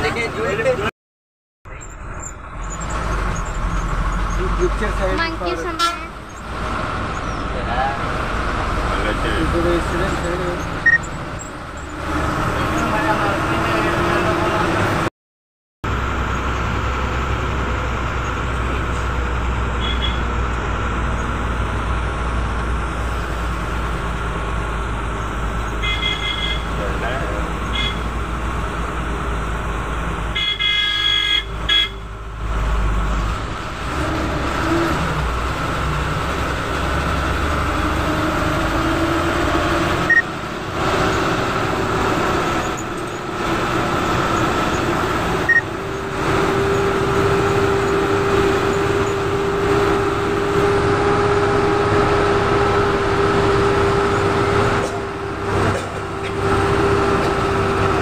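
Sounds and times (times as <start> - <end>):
bus engine and road noise: 0.0 - 0.9, 1.6 - 15.1, 15.8 - 58.0
vehicle horn: 5.6 - 6.2, 19.8 - 20.3, 25.8 - 26.8, 27.7 - 28.1, 30.3 - 32.1.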